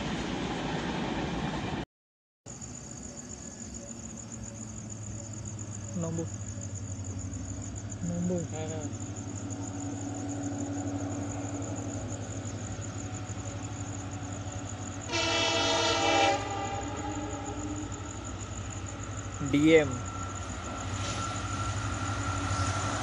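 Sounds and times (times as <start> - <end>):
crickets chirping: 2.5 - 23.0
locomotive horn blast: 15.1 - 17.9.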